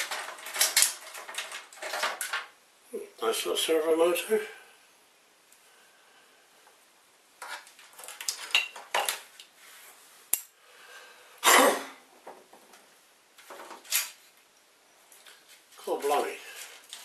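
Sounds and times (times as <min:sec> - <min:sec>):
rattling: 0:00.0 - 0:02.5
parts and tools clattering: 0:00.0 - 0:02.6, 0:07.4 - 0:09.4, 0:13.4 - 0:14.3.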